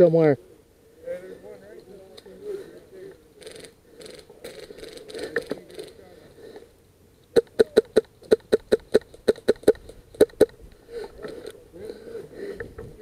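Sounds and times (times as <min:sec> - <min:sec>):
rustling through dry brush: 0:00.4 - 0:06.9.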